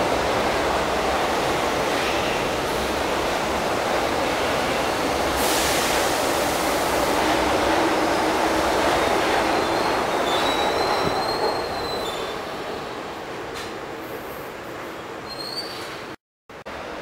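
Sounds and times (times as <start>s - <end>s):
train wheels rushing on rail: 0.0s - 16.2s
high wheel squeal: 9.6s - 12.4s, 15.2s - 16.0s.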